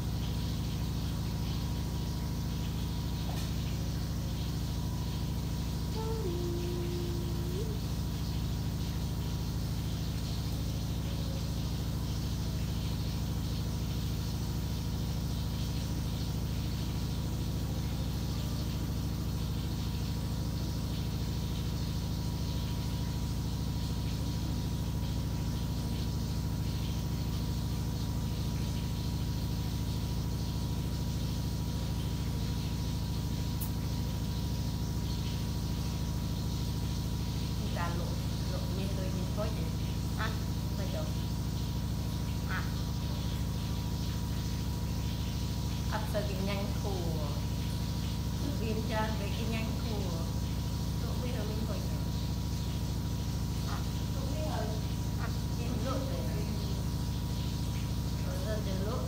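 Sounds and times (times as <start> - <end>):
low machine hum: 0.0 - 59.0
faint high tone: 5.9 - 8.0.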